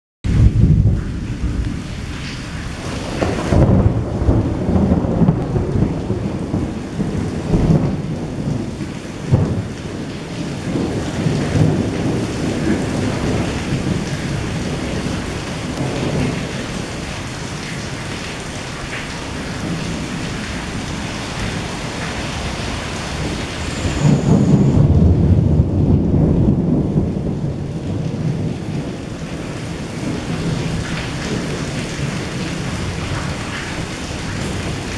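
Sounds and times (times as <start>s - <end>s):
rain on wet pavement: 0.3s - 34.9s
rolling thunder: 0.3s - 34.9s.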